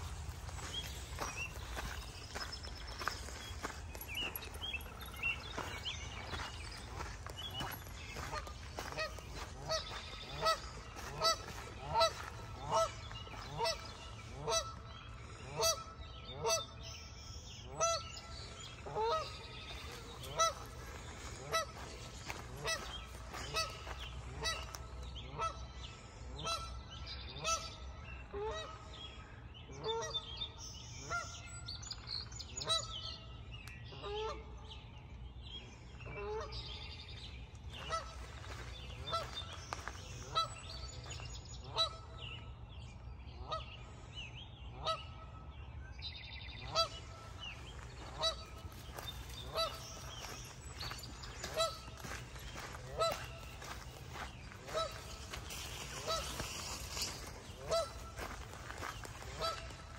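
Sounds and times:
geese honking: 0.0 - 16.8, 17.7 - 25.6, 37.7 - 42.2, 46.6 - 59.9.

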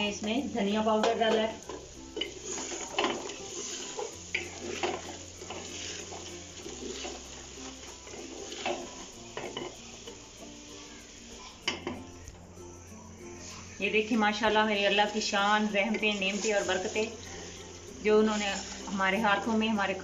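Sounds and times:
curry sizzling faintly: 0.0 - 20.0
wooden spoon knocking and scraping pot: 0.1 - 10.5.

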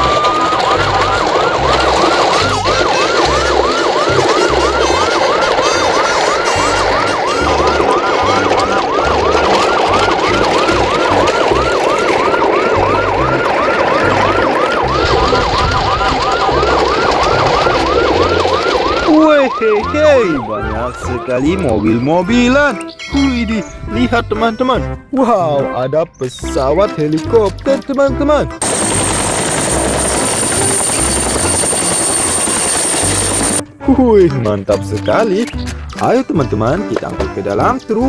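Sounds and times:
siren yelping: 0.0 - 23.1, 27.6 - 33.6.

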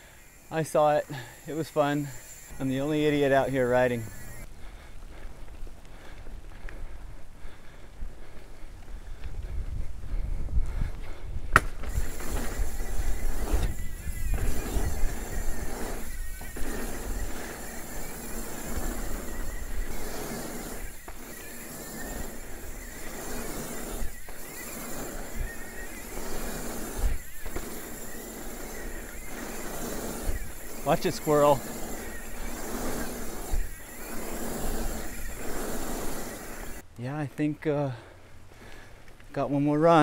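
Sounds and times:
bike tyre rumble: 0.0 - 36.8
wind rush: 9.0 - 21.4.

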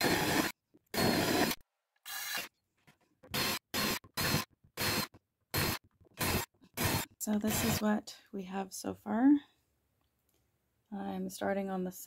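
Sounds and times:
cordless drill boring into wood: 0.0 - 2.5, 3.3 - 7.8.

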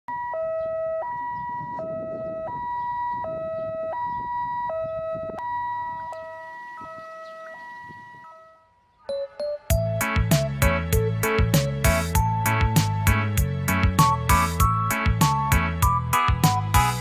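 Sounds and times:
two-tone siren: 0.1 - 10.0
moving vehicle rumble: 9.7 - 17.0.

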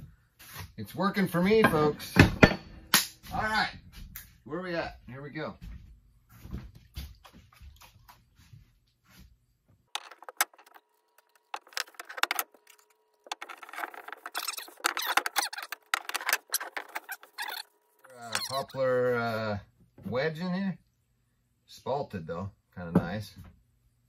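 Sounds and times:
tools scraping wood: 10.0 - 18.7.

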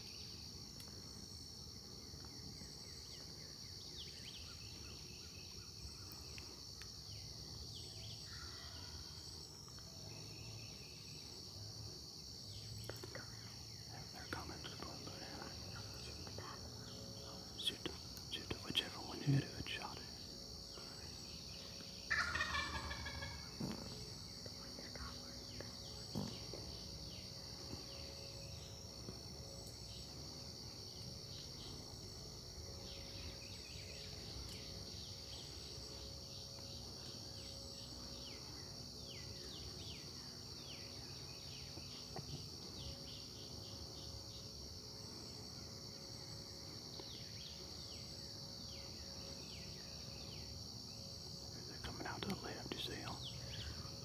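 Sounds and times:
high insect drone: 0.0 - 54.0
small birds chirping: 12.4 - 45.4, 46.0 - 54.0
turkey gobbling: 22.1 - 23.5.

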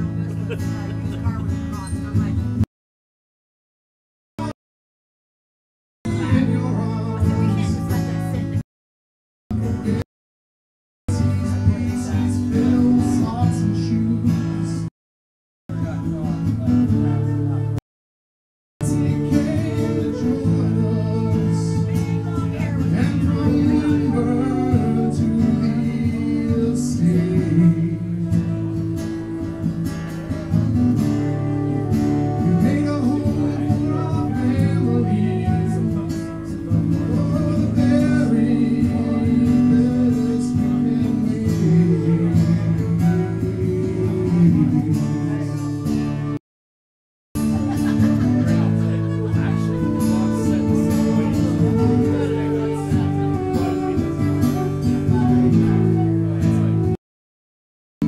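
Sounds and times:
guitar playing: 0.0 - 2.6, 6.1 - 8.6, 11.1 - 14.9, 15.7 - 17.8, 18.8 - 46.4, 47.4 - 57.0
flute melody: 18.8 - 26.7, 28.1 - 40.1, 41.6 - 46.4, 48.6 - 57.0.

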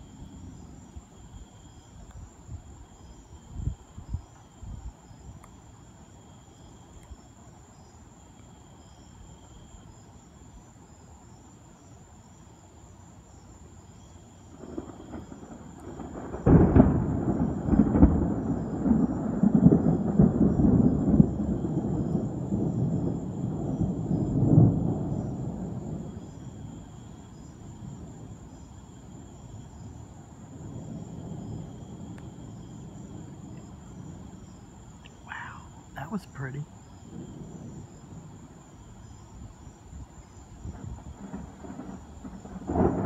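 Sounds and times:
night insects chirping: 0.0 - 43.0
thunder rumbling and cracking: 14.5 - 26.8, 30.4 - 34.6, 35.2 - 38.7, 40.5 - 43.0.

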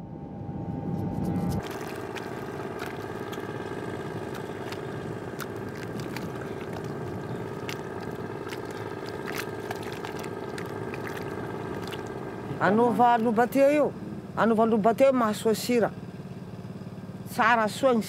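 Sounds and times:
steady hum: 0.0 - 15.0
hands smoothing wet mud: 1.4 - 12.6.

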